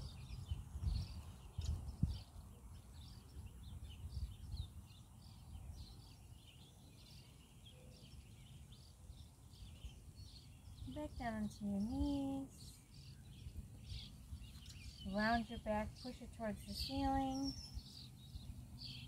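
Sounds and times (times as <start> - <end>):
wind rumble on microphone: 0.0 - 7.2, 8.3 - 19.0
birds chirping: 0.0 - 19.0.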